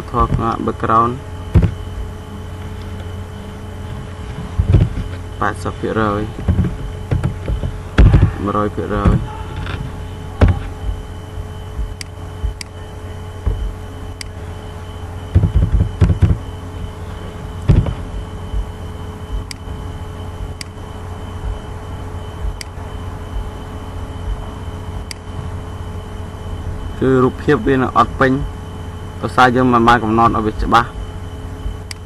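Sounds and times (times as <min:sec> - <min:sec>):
low electrical hum: 0:00.0 - 0:32.0.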